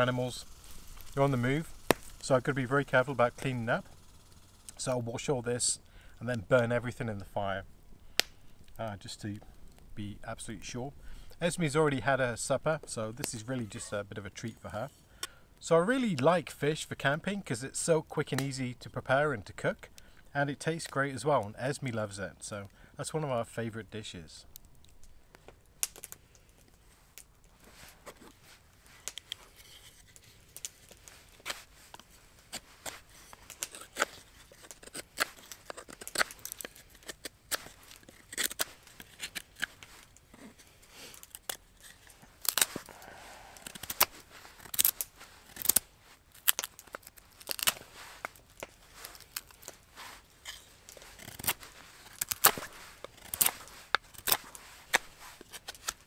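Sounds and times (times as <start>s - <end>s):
wood snapping: 1.8s - 2.3s, 8.1s - 8.8s, 24.5s - 27.3s, 41.1s - 43.0s, 43.6s - 49.8s, 50.4s - 56.0s
knife scraping wood: 27.6s - 56.0s.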